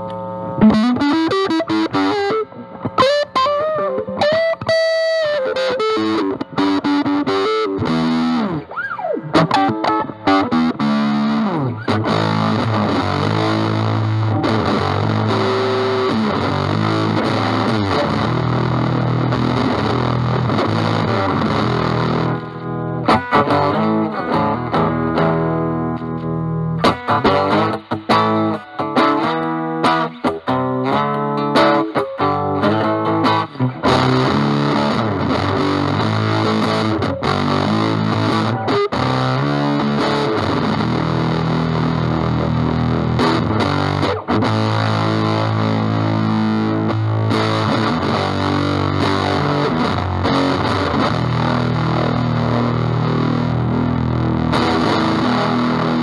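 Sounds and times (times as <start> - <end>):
fuzzed electric guitar lead: 0.0 - 56.0.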